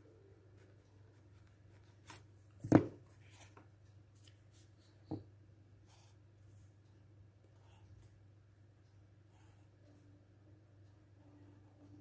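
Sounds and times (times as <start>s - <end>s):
faint low hum: 0.0s - 12.0s
drawing tools knocking on wooden desk: 2.6s - 3.0s.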